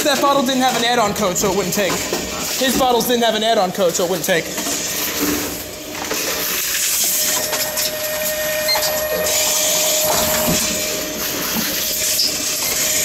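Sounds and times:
vending machine mechanical whirring: 0.0s - 13.0s
steady hum: 5.0s - 13.0s.

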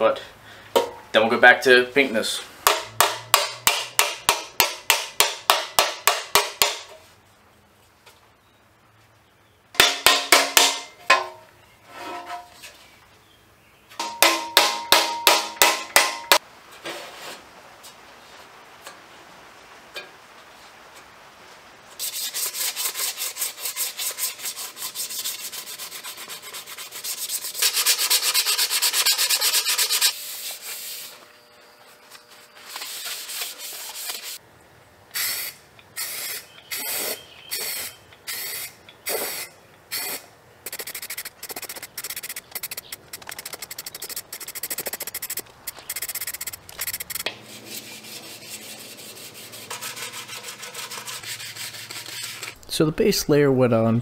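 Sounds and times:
hand sanding metal: 22.0s - 31.2s, 32.5s - 34.4s, 40.7s - 52.6s
sanding block rubbing strokes: 22.0s - 31.3s, 32.4s - 34.4s, 35.3s - 52.6s.

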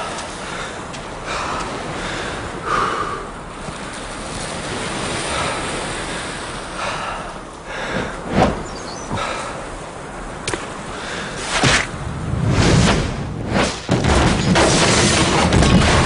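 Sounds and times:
surf washing onto beach: 0.0s - 7.1s.

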